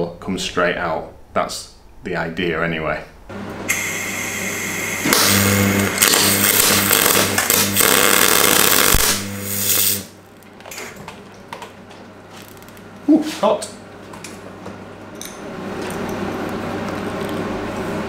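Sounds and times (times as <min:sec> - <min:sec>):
steady electrical hum: 0:00.0 - 0:18.0
welding arc crackling: 0:03.7 - 0:10.3.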